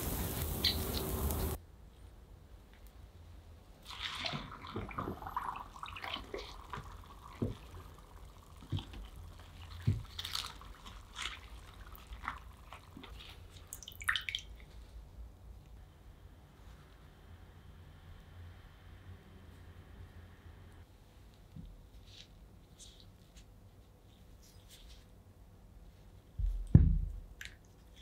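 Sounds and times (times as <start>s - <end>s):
water sloshing in bucket: 3.8s - 14.7s.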